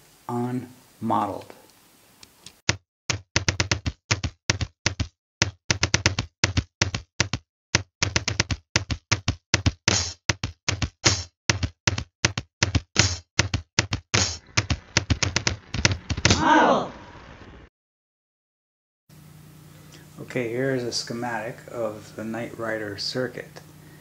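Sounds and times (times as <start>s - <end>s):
sharp percussive taps and knocks: 2.7s - 16.3s.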